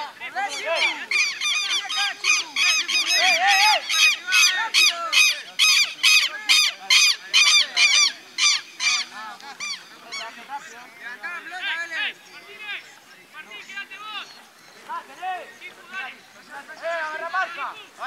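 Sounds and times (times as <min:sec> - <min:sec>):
bird making sharp repeated calls: 0:00.0 - 0:10.8.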